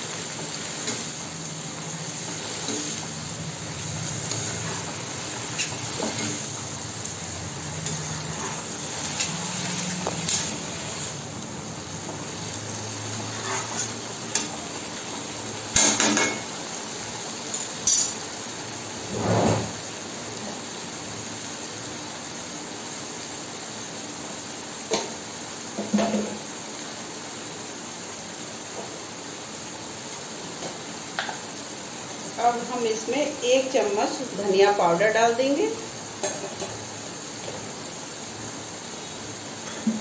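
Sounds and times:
frying sizzle: 0.0s - 40.0s
spatula clattering: 7.7s - 10.7s.

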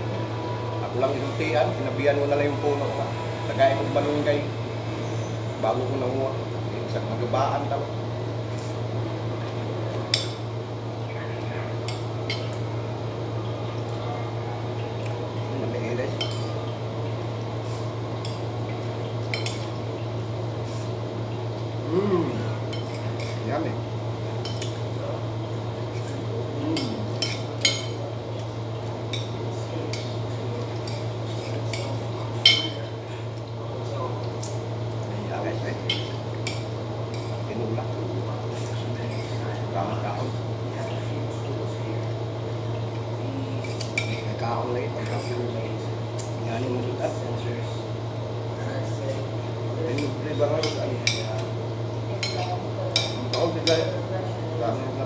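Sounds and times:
steady low hum: 0.0s - 55.0s
metal spoon clinking on plate: 30.8s - 32.8s.

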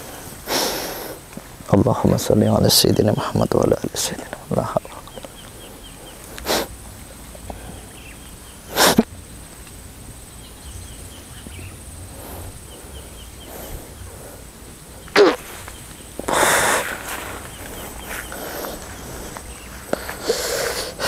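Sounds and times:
forceful breathy blast of air: 16.2s - 17.2s.

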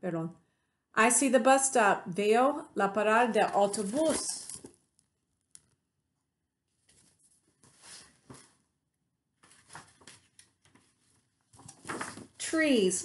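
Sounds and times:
paper pages rustling: 3.5s - 4.9s, 6.7s - 8.6s, 9.4s - 12.6s.

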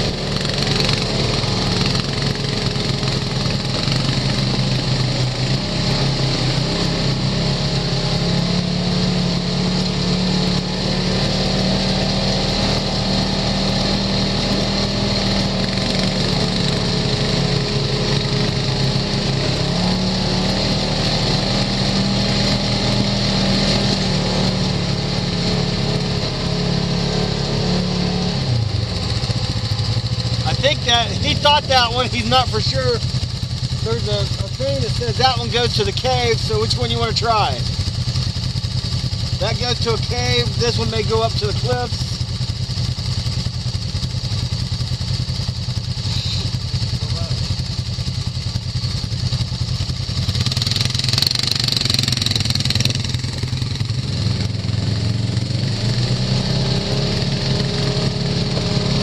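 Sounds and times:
utility vehicle engine running: 0.0s - 59.0s.

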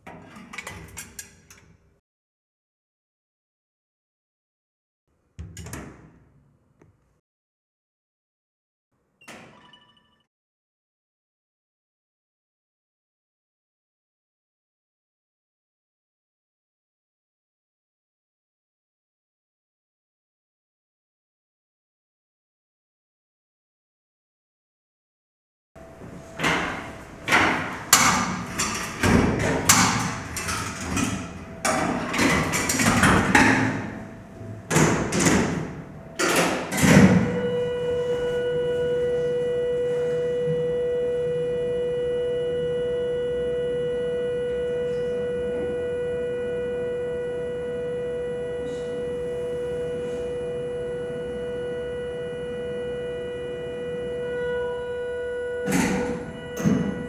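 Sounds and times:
doors shutting: 0.0s - 1.8s, 5.4s - 6.3s, 25.8s - 40.7s, 55.6s - 57.0s
mixer whine: 37.1s - 57.0s.

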